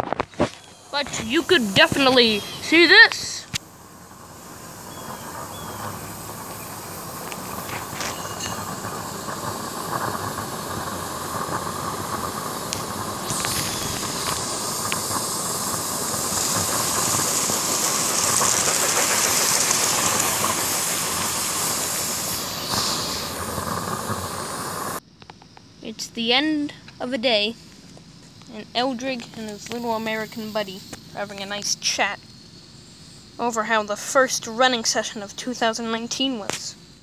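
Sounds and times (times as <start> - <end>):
steam locomotive hissing: 0.0 - 25.0, 28.6 - 32.2
sharp high-pitched hiss: 0.0 - 25.9, 26.8 - 33.8.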